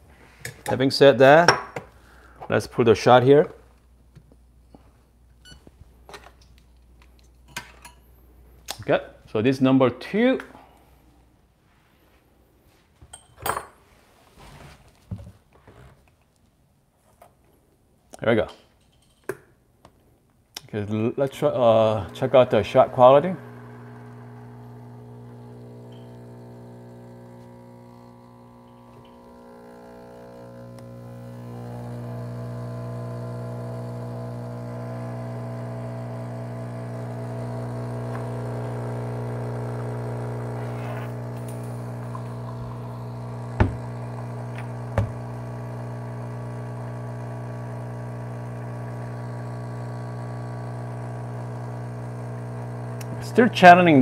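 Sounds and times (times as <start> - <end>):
espresso machine pump humming: 21.5 - 54.0.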